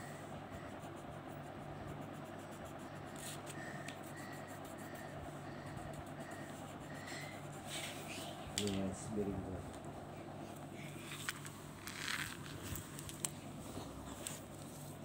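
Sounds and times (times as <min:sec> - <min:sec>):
pencil scratching on paper: 0:00.0 - 0:08.2
steady low hum: 0:00.0 - 0:15.0.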